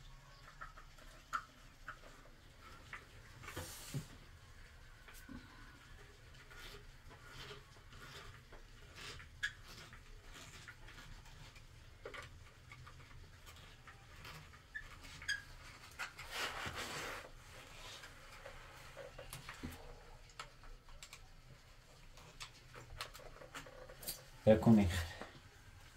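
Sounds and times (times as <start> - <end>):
scraping rustle: 1.9 - 20.3.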